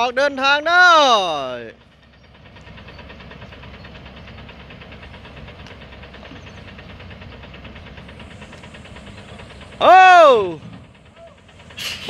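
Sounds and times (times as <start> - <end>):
diesel truck engine rumbling: 0.0 - 12.0.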